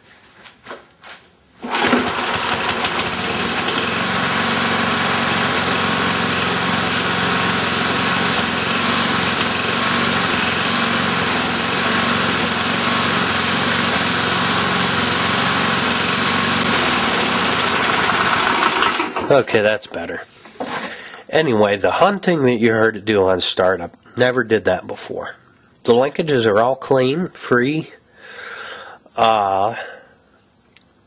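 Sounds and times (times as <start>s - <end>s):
recoil pull-start rattling: 1.6s - 19.5s
lawn mower engine running: 1.6s - 22.5s.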